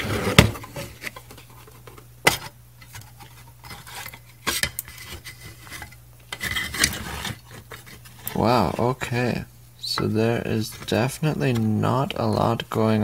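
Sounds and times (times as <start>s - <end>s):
metal cover scraping: 0.0s - 9.1s.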